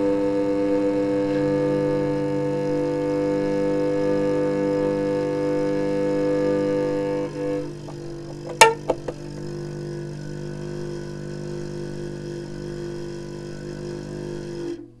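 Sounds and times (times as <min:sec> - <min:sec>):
hurdy-gurdy drone chord: 0:04.4 - 0:14.9
sharp buzzing bridge buzz: 0:06.7 - 0:13.1.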